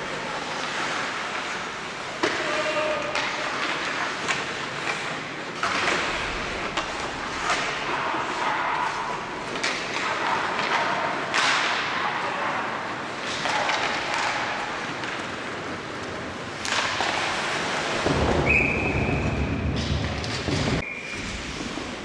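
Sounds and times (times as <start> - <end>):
skates scraping on ice: 0.0 - 22.0
sticks and puck clacking: 0.0 - 22.0
referee's whistle: 18.4 - 19.6.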